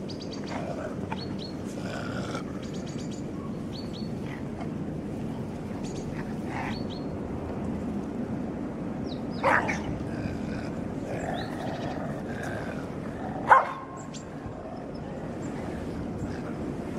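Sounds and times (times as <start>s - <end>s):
dogs barking: 9.4s - 10.1s, 10.7s - 14.3s.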